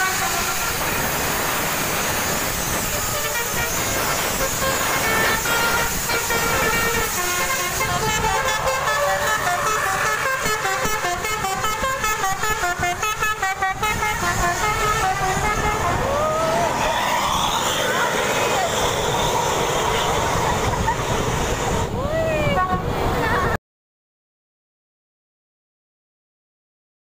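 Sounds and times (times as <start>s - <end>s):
musical air horn tune: 0.0s - 1.3s, 2.8s - 16.3s
bus engine and tyre noise: 0.0s - 23.6s.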